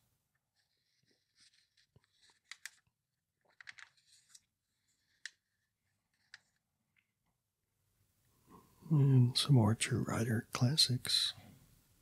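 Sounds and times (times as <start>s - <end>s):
paper pages rustling: 0.4s - 6.7s.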